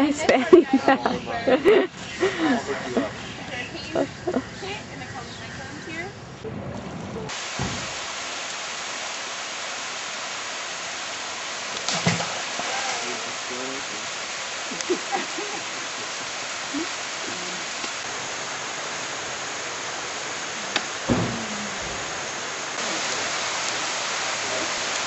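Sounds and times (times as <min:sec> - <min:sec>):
waterfall rushing: 0:00.0 - 0:04.8, 0:07.3 - 0:25.0
faint voices: 0:00.0 - 0:06.2, 0:14.7 - 0:18.0, 0:20.4 - 0:25.0
sharp knock: 0:21.1 - 0:22.1.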